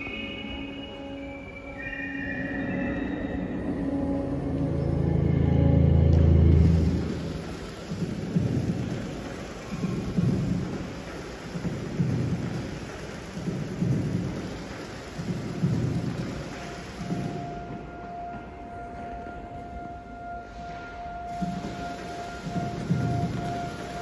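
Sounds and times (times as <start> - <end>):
loud low drone: 2.3 - 10.8
thunder-like rumbles: 3.4 - 14.6
rain-like hiss: 6.2 - 24.0.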